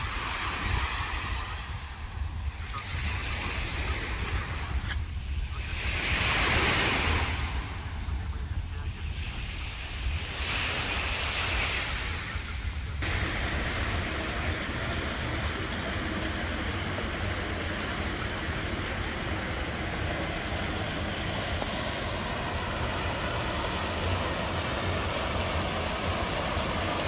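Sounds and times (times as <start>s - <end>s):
fountain water splashing: 11.8s - 27.0s.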